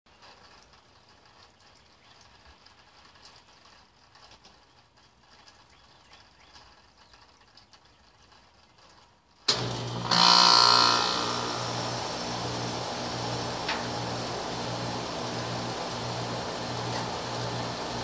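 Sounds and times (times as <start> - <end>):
heat pump compressor starting: 9.5 - 18.0.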